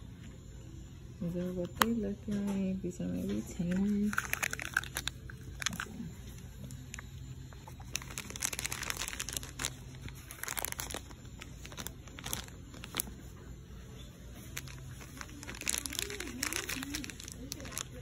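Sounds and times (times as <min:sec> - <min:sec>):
plastic bag crinkling: 0:03.9 - 0:06.1, 0:06.7 - 0:13.3, 0:14.4 - 0:18.0.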